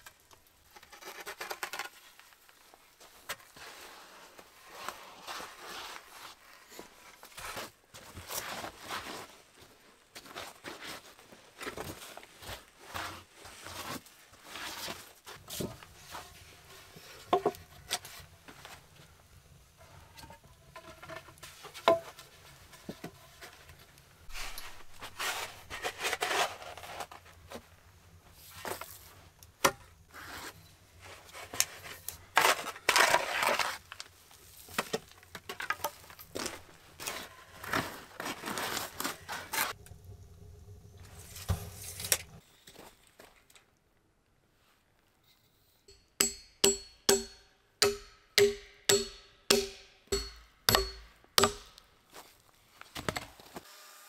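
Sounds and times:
spade scraping soil: 24.3s - 27.3s, 30.1s - 33.9s, 36.4s - 39.8s
spade knocking against wood: 46.2s - 51.8s.

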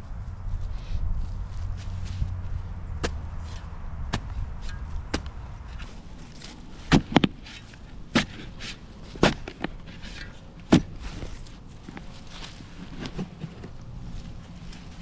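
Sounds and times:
shovel chopping and scraping soil: 2.9s - 13.8s.

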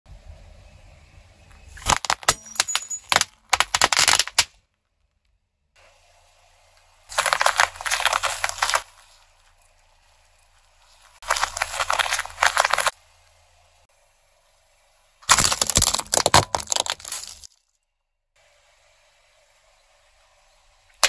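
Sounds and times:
car tyre crushing things: 1.5s - 5.2s, 7.1s - 13.0s, 15.2s - 17.6s
dense crackle of crushed items: 1.8s - 4.5s, 7.1s - 9.2s, 11.2s - 12.9s, 15.2s - 17.6s
foil wrapped candies cracking: 1.8s - 4.6s, 7.1s - 9.0s, 11.2s - 12.9s, 15.2s - 17.6s.

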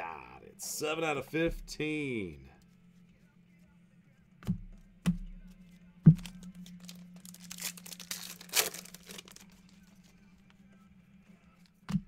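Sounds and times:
dull thumps: 4.4s - 6.5s
foil wrapper crinkling and tearing: 6.2s - 10.2s.

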